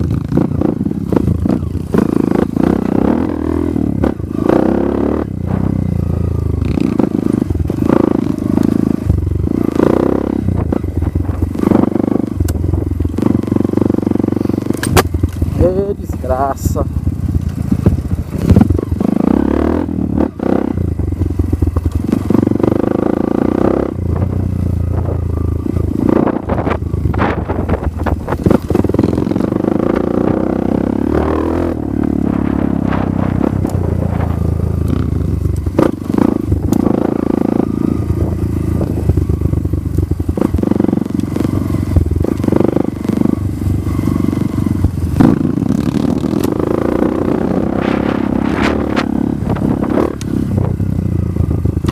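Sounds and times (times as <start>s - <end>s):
dirt bike engine revving: 0.0s - 51.9s
knocks and clatter over bumps: 14.6s - 16.3s, 17.1s - 19.2s.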